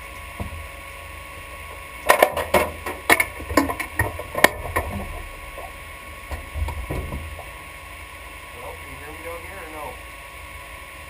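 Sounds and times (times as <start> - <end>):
sharp clicks and metal knocks: 2.0 - 5.7.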